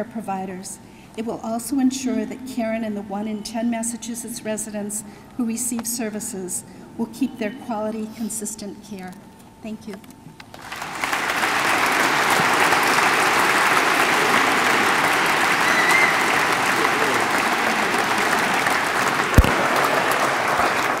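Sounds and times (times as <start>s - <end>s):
audience applauding: 10.5s - 21.0s.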